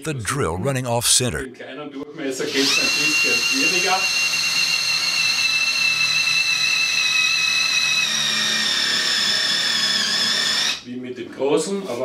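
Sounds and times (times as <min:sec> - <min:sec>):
cordless drill boring into wood: 0:02.5 - 0:10.8.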